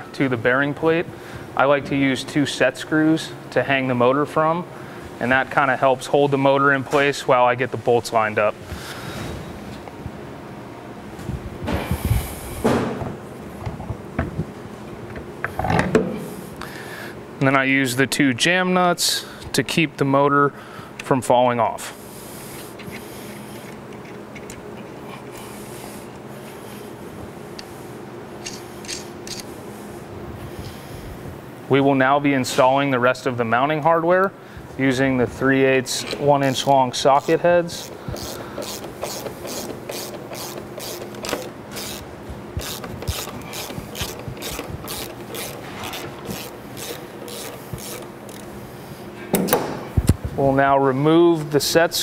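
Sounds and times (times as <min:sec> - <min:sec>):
steady hum with low tone: 0:00.0 - 0:52.0
ratchet wrench clicking: 0:28.4 - 0:29.5, 0:37.8 - 0:42.0, 0:42.6 - 0:48.5.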